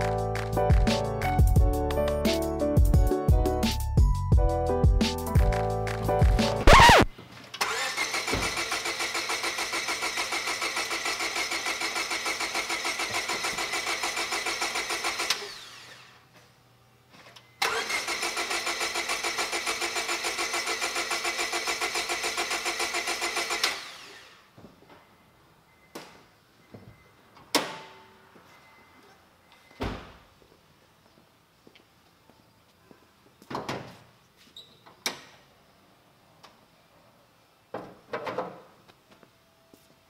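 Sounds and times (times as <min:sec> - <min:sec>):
engine cranking on starter: 0:06.7 - 0:16.1, 0:17.6 - 0:24.4.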